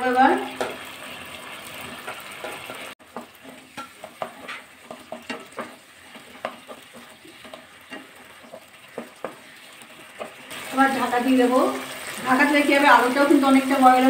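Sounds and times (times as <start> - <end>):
faint sizzle of cooking paste: 0.0 - 14.0
spatula scraping and tapping pan: 0.4 - 1.0, 1.7 - 10.7.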